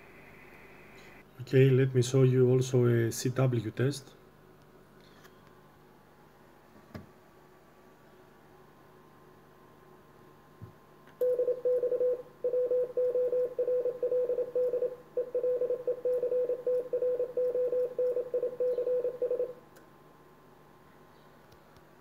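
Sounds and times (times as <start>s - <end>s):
morse code tone: 11.2s - 19.5s.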